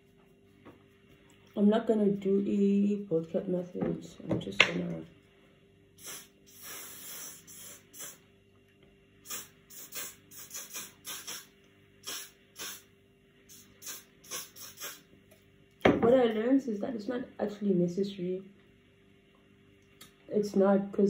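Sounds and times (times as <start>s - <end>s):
spray bottle spraying: 6.0s - 8.2s, 9.2s - 12.9s, 13.5s - 15.0s.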